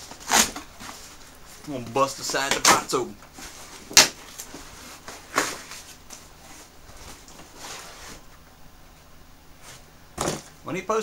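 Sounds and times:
cardboard ripping: 0.0s - 1.2s, 2.4s - 6.0s
cardboard rustling and scraping: 0.0s - 8.4s.

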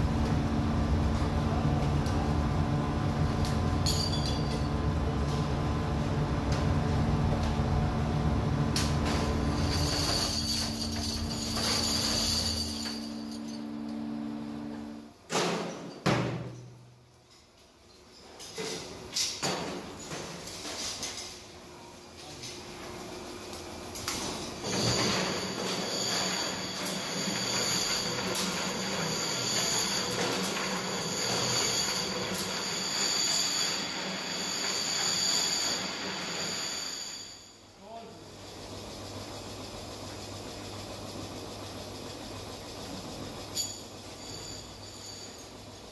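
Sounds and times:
steady hum: 0.0s - 15.1s
tumbling drum rattling metal parts: 8.9s - 13.5s.

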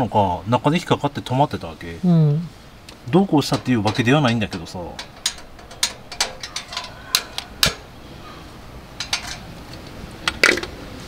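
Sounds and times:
metallic clicks and taps: 2.9s - 7.8s.

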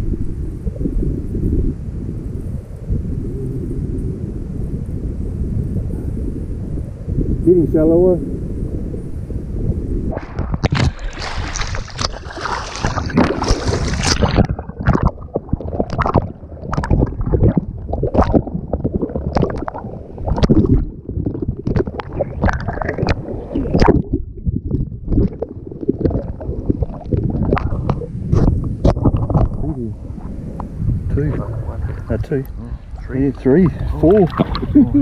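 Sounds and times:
water splashing and sloshing: 10.1s - 35.0s.

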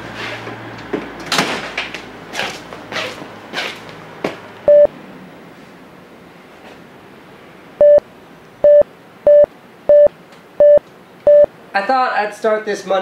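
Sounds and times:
electronic beeps: 4.7s - 4.9s, 7.8s - 8.0s, 8.6s - 11.5s.

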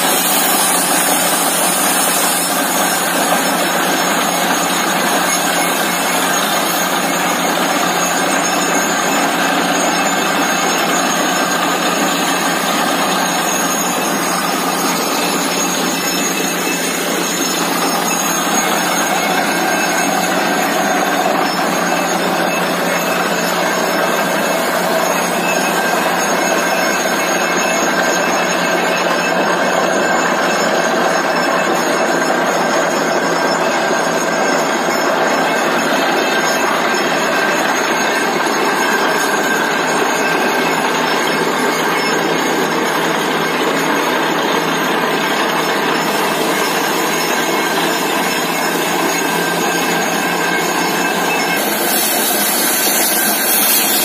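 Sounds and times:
compressed air blowing slurry: 0.0s - 3.8s, 51.6s - 54.0s
drilling rig and air compressor: 0.0s - 54.0s.

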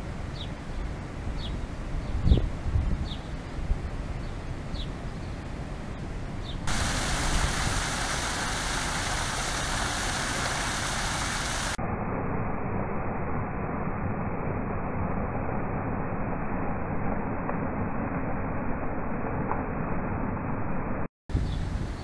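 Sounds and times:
small bird chirping: 0.3s - 3.6s
fountain water splashing: 6.7s - 11.8s.

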